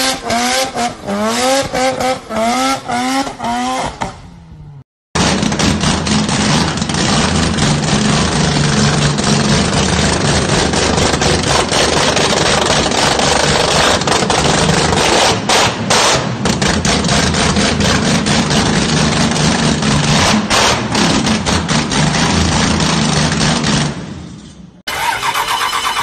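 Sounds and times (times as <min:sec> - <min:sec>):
car engine idling roughly: 0:05.2 - 0:15.0
engine popping and crackling: 0:05.2 - 0:24.0.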